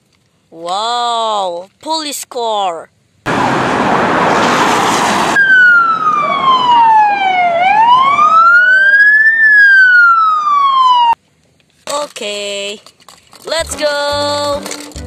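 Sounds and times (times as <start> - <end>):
loud rushing noise: 3.3 - 7.0
police siren wailing: 5.2 - 11.2.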